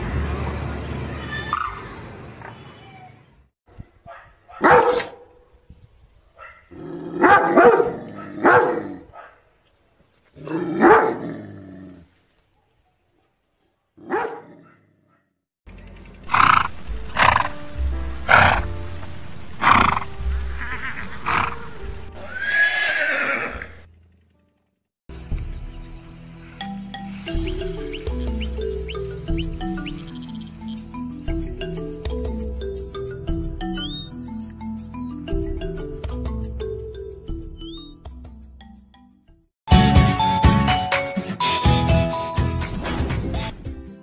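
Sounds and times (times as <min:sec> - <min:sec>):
dog barking and howling: 0:04.1 - 0:05.4, 0:06.4 - 0:09.4, 0:10.4 - 0:11.4, 0:14.0 - 0:15.2
background music: 0:16.3 - 0:22.8, 0:25.1 - 0:44.0
horse neighing: 0:20.6 - 0:23.9.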